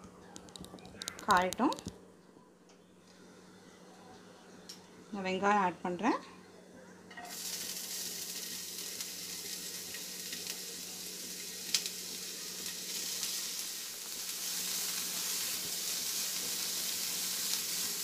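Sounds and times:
onions sizzling in hot oil: 7.2 - 18.0.

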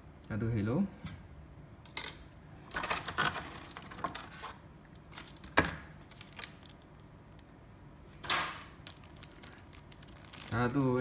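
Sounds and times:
plastic packaging crinkling: 2.7 - 7.5, 8.5 - 11.0.

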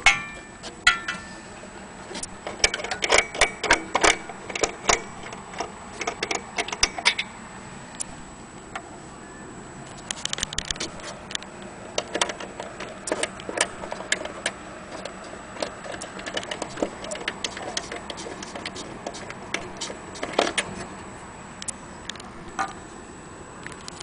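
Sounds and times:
clicks and knocks handling clock case: 12.0 - 20.8.

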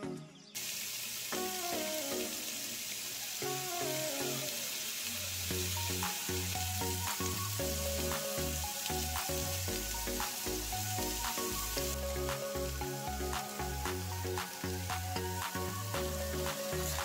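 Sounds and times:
vegetables sizzling in a frying pan: 0.6 - 17.0
background music with pulsing bass: 5.5 - 17.0.

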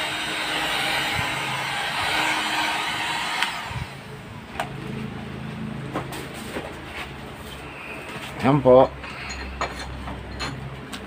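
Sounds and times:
heat gun blowing air: 0.0 - 4.1.

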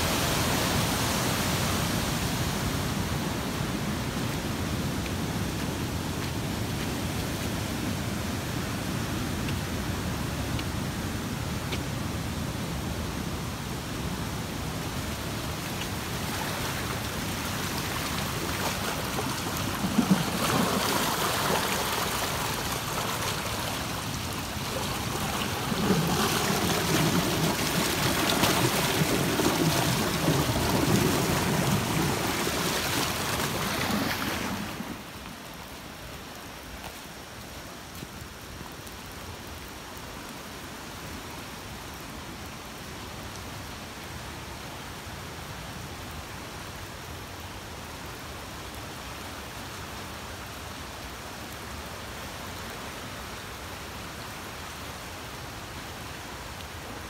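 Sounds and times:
floodwater rushing: 0.0 - 44.2.

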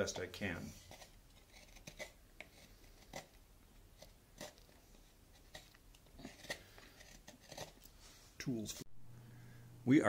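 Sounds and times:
knife scraping wood: 0.0 - 3.4, 4.0 - 8.0.

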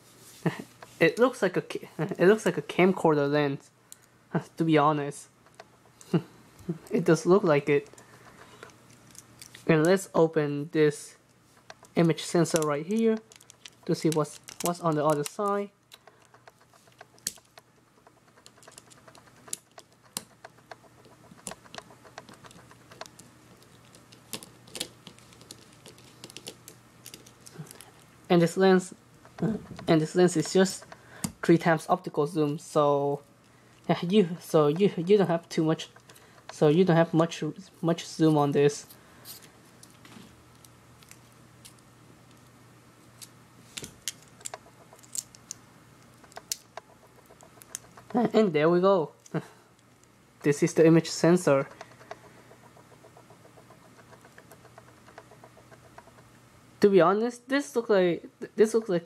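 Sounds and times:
faint steady hum: 0.0 - 59.0
small clicks of handling plastic parts: 3.9 - 4.2, 5.4 - 10.0, 11.6 - 28.1, 33.7 - 36.7, 38.4 - 48.4, 49.2 - 56.4
screwdriver clicking on small screws: 11.7 - 27.9, 44.0 - 48.2.

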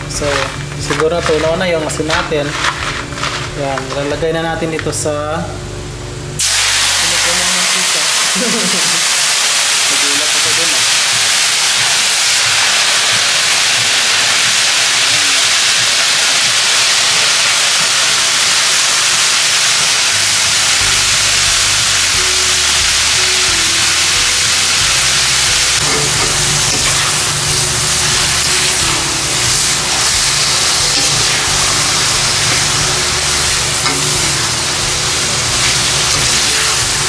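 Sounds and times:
insects sizzling in hot oil: 6.4 - 37.0.

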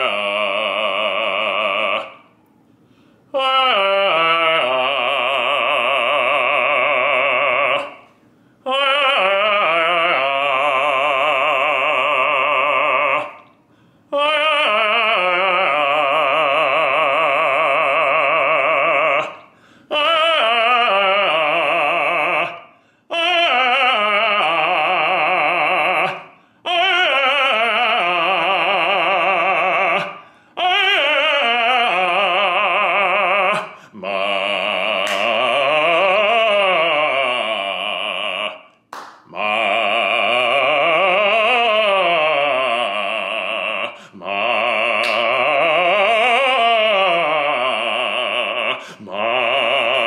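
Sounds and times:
baritone singing vocal exercises: 0.0 - 50.0
singer breathing: 2.5 - 3.3, 8.1 - 8.7, 13.5 - 14.1, 19.4 - 19.9, 22.6 - 23.1, 26.3 - 26.7, 30.1 - 30.6, 33.6 - 34.0, 43.9 - 44.2, 48.7 - 49.1.

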